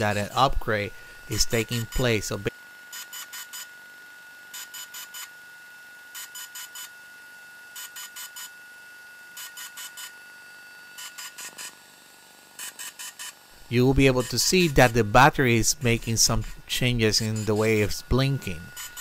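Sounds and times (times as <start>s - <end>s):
faint high whine: 0.0s - 11.9s, 12.6s - 19.0s
quadcopter quick beeps: 12.6s - 13.4s.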